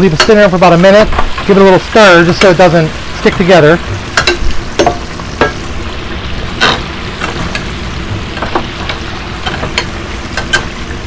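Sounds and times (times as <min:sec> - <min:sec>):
chicken sizzling in oil: 0:00.0 - 0:11.0
utensil knocking against metal: 0:04.2 - 0:05.6.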